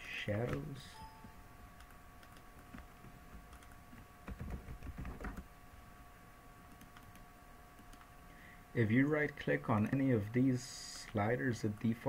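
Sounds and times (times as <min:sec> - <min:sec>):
keyboard typing: 0:00.4 - 0:05.5, 0:06.7 - 0:07.2, 0:07.8 - 0:08.1, 0:09.7 - 0:10.1.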